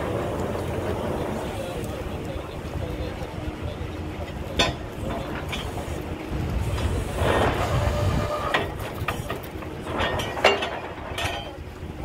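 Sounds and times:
drilling rig low rumble: 0:00.0 - 0:12.0
metallic clanks of steel pipe: 0:08.5 - 0:11.6.

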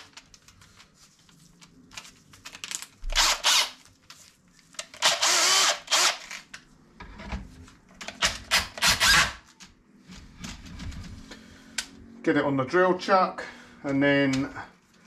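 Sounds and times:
electric drill running: 0:03.1 - 0:03.8, 0:05.0 - 0:06.4.

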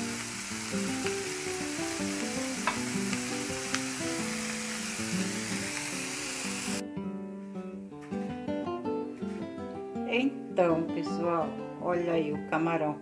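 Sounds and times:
shrimp and onion sizzling in pan: 0:00.0 - 0:06.8.

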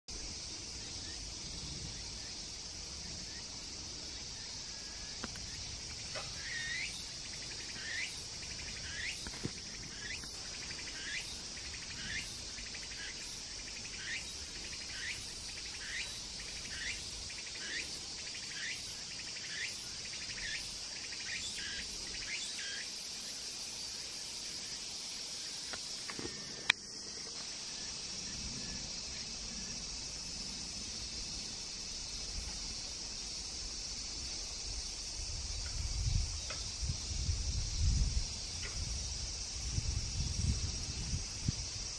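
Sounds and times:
high insect drone: 0:00.1 - 0:41.9.

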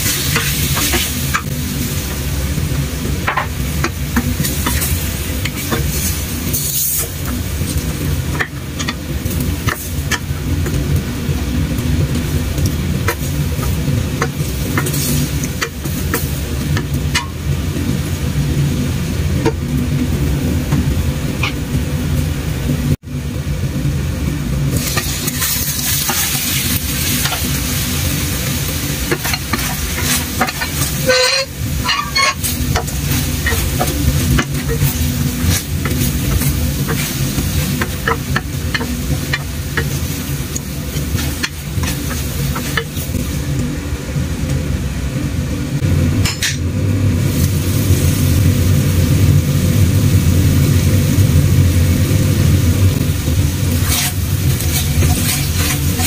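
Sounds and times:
food sizzling in a pan: 0:00.0 - 0:22.3, 0:24.7 - 0:43.6, 0:47.2 - 0:56.0
steady low hum: 0:00.0 - 0:56.0
spatula scraping a pan: 0:29.1 - 0:43.1, 0:53.7 - 0:56.0.

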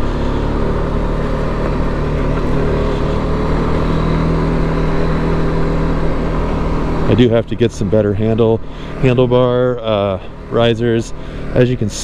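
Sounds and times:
motorcycle engine cruising: 0:00.0 - 0:12.0.

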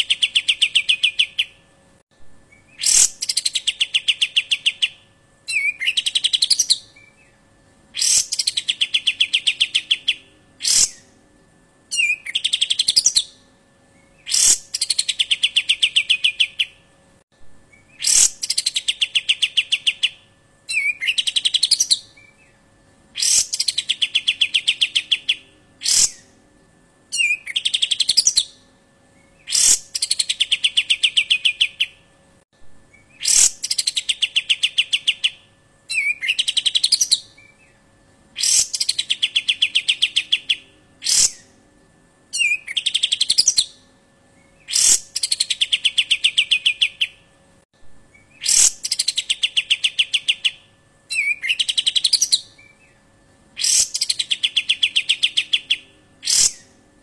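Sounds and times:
bird piercing trills: 0:00.0 - 0:01.6, 0:02.5 - 0:07.4, 0:08.0 - 0:11.1, 0:11.9 - 0:13.4, 0:14.0 - 0:16.8, 0:17.7 - 0:22.6, 0:23.2 - 0:26.3, 0:27.1 - 0:28.6, 0:29.2 - 0:32.0, 0:33.0 - 0:37.8, 0:38.4 - 0:41.5, 0:42.3 - 0:43.8, 0:44.4 - 0:47.2, 0:48.1 - 0:53.0, 0:53.6 - 0:56.7.

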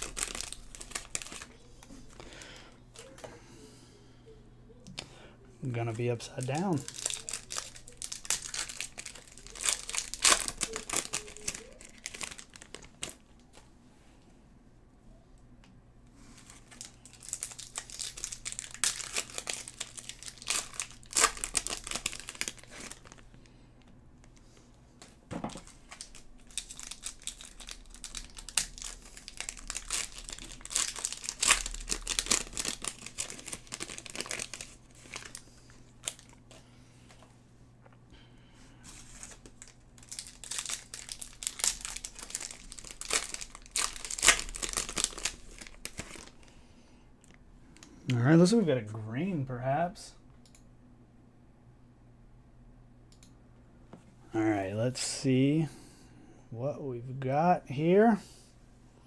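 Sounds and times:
wrappers crinkling and tearing: 0:00.0 - 0:03.2, 0:05.8 - 0:13.5, 0:16.2 - 0:23.5, 0:24.3 - 0:37.2, 0:38.8 - 0:46.6.

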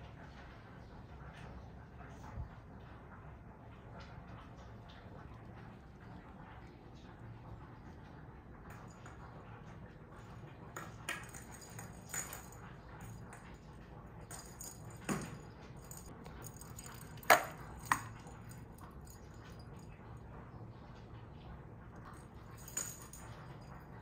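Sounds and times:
kittens playing on hard floor: 0:08.7 - 0:19.8, 0:22.0 - 0:24.0.

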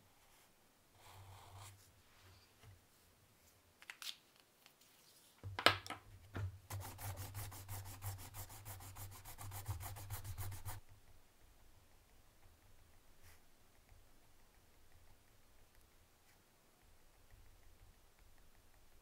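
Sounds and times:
eraser rubbing on paper: 0:06.7 - 0:10.8.

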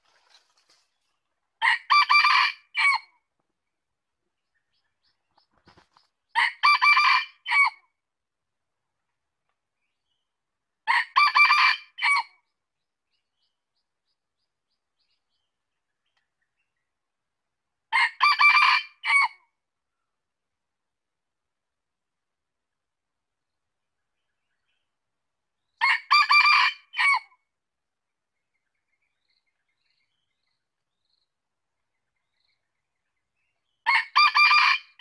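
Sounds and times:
rooster crowing: 0:01.6 - 0:03.0, 0:06.4 - 0:07.8, 0:10.9 - 0:12.3, 0:18.0 - 0:19.3, 0:25.8 - 0:27.2, 0:33.9 - 0:35.0.

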